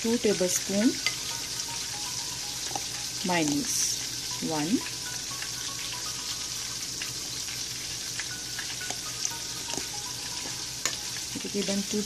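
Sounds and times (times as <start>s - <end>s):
chicken sizzling in hot oil: 0.0s - 12.0s.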